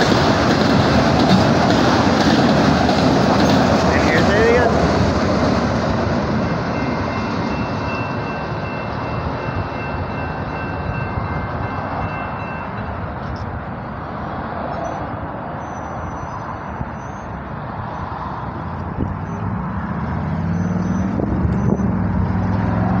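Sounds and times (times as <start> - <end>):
freight train rumbling past: 0.0 - 23.0
road vehicle engine hum: 12.8 - 23.0.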